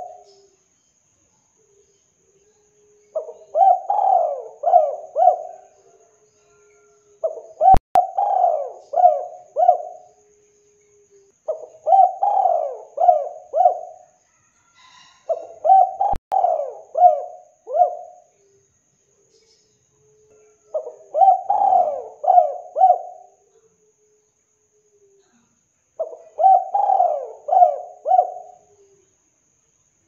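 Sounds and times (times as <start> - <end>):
dove cooing: 0.0 - 0.5, 3.1 - 14.1, 14.8 - 18.3, 20.3 - 23.4, 26.0 - 29.0.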